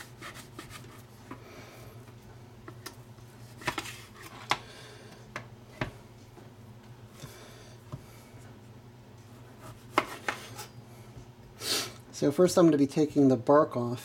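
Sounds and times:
knife scraping through crust: 0.0 - 1.0.

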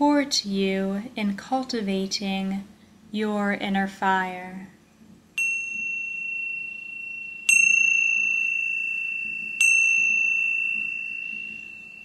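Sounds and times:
high-pitched metal chime: 5.4 - 12.0.

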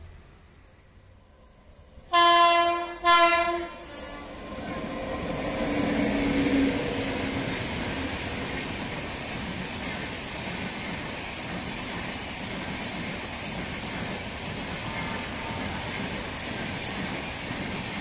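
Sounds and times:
locomotive horn blasts: 2.1 - 4.2
train wheels rumbling on rails: 2.6 - 18.0.

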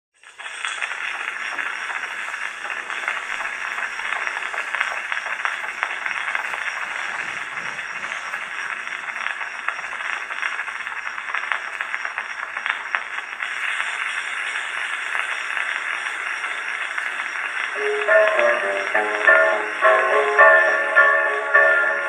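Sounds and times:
phonograph surface hiss and crackle: 0.2 - 22.0.

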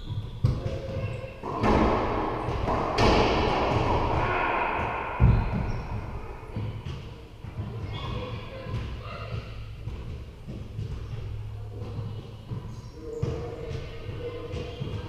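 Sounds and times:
racquetball thud: 1.4 - 7.1
loud rushing noise: 1.4 - 7.4.

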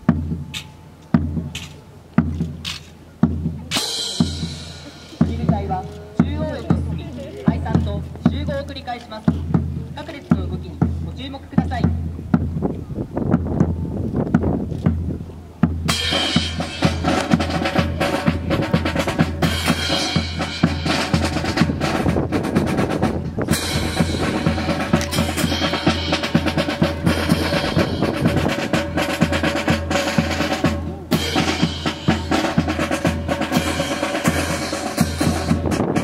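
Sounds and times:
snare and bass drum beat: 0.0 - 12.6, 13.3 - 36.0.

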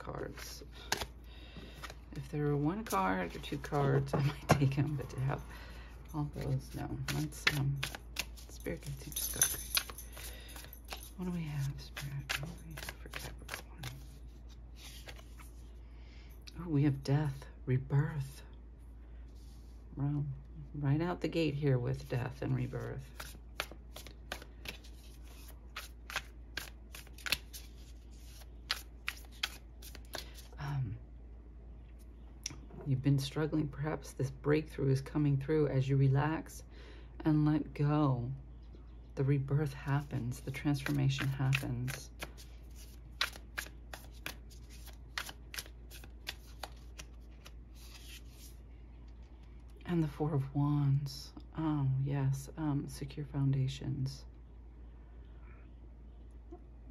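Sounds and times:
cards snapping in shuffle: 0.8 - 1.1, 7.0 - 9.0, 9.6 - 14.2, 23.0 - 30.5, 40.7 - 48.5.

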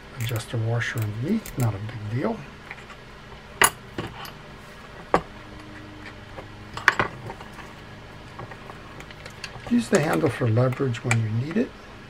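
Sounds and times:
metal reel parts clicking: 0.1 - 1.9, 8.4 - 11.5.

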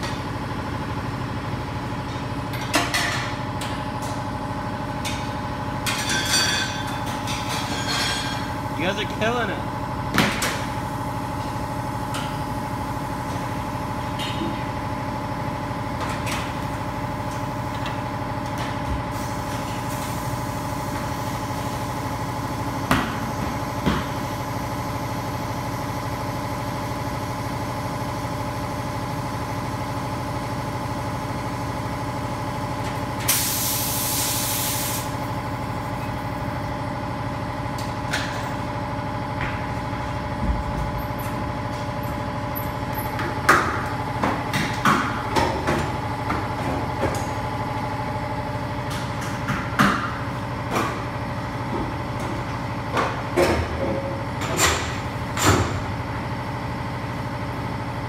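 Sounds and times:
steady machine hum: 0.0 - 58.0
metal clanks from tools: 5.8 - 8.5
compressed air hiss: 33.3 - 35.2.

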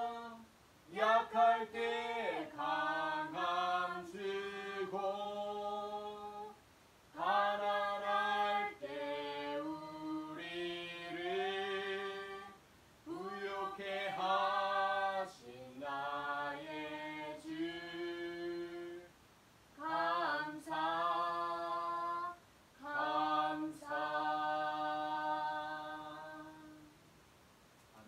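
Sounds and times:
man singing unaccompanied: 0.0 - 19.2.

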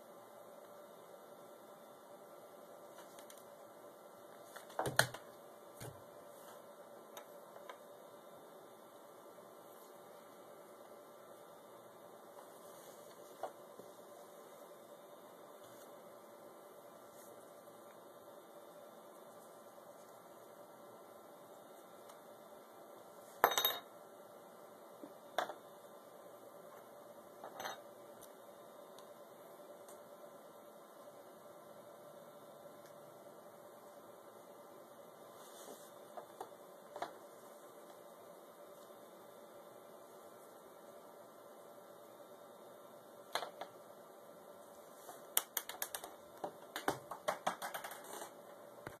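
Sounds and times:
small hard objects clicking: 45.4 - 48.3.

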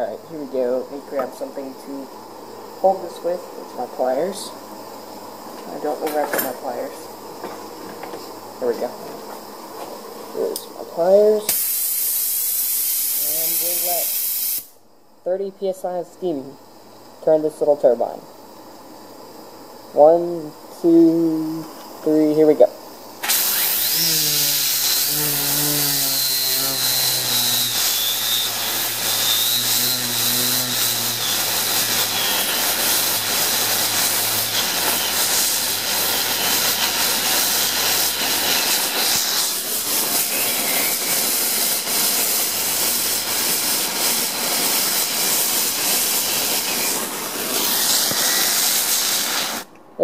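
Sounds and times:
steam hissing from a hose: 11.2 - 14.8, 23.2 - 49.7
spinning turbine wheel whine: 20.0 - 49.7.

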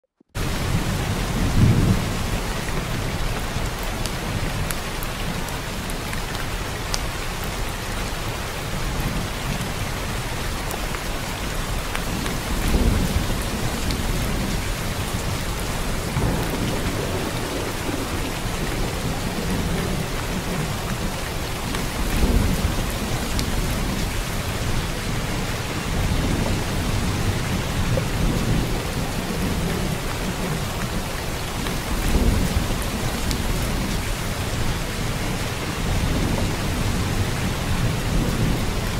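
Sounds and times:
heavy rain: 0.4 - 38.9
low thunder rumbling: 12.1 - 38.9.

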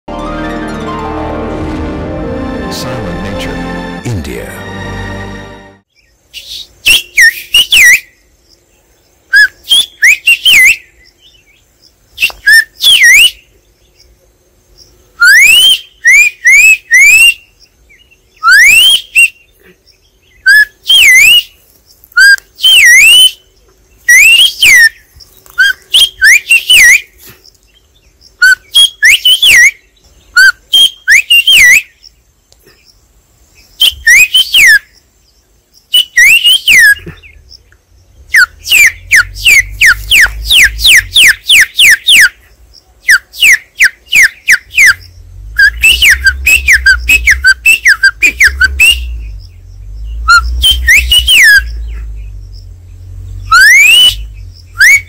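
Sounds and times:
man whistling bird calls: 9.3 - 10.8, 12.2 - 13.4, 15.2 - 17.4, 18.4 - 19.4, 20.4 - 21.6, 22.2 - 23.4, 24.1 - 25.0, 25.6 - 27.2, 28.4 - 32.0, 33.8 - 34.9, 35.9 - 37.3, 38.3 - 42.4, 43.1 - 45.0, 45.6 - 49.4, 50.2 - 52.2, 53.5 - 55.0.

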